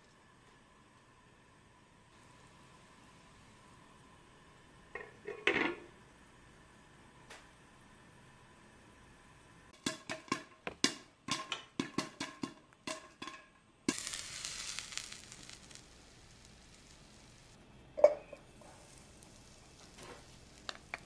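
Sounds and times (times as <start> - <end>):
hot oil crackling: 9.7 - 21.0
popcorn popping: 9.7 - 21.0.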